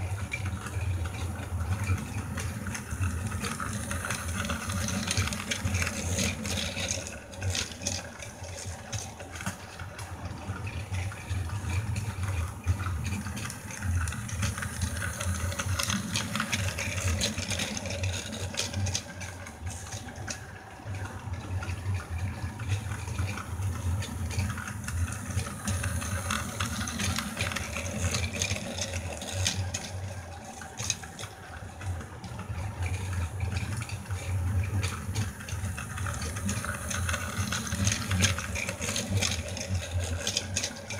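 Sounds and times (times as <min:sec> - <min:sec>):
toy train motor whirring: 0:00.0 - 0:10.2, 0:10.8 - 0:20.6, 0:22.6 - 0:40.9
wheels rattling on track joints: 0:00.0 - 0:40.9.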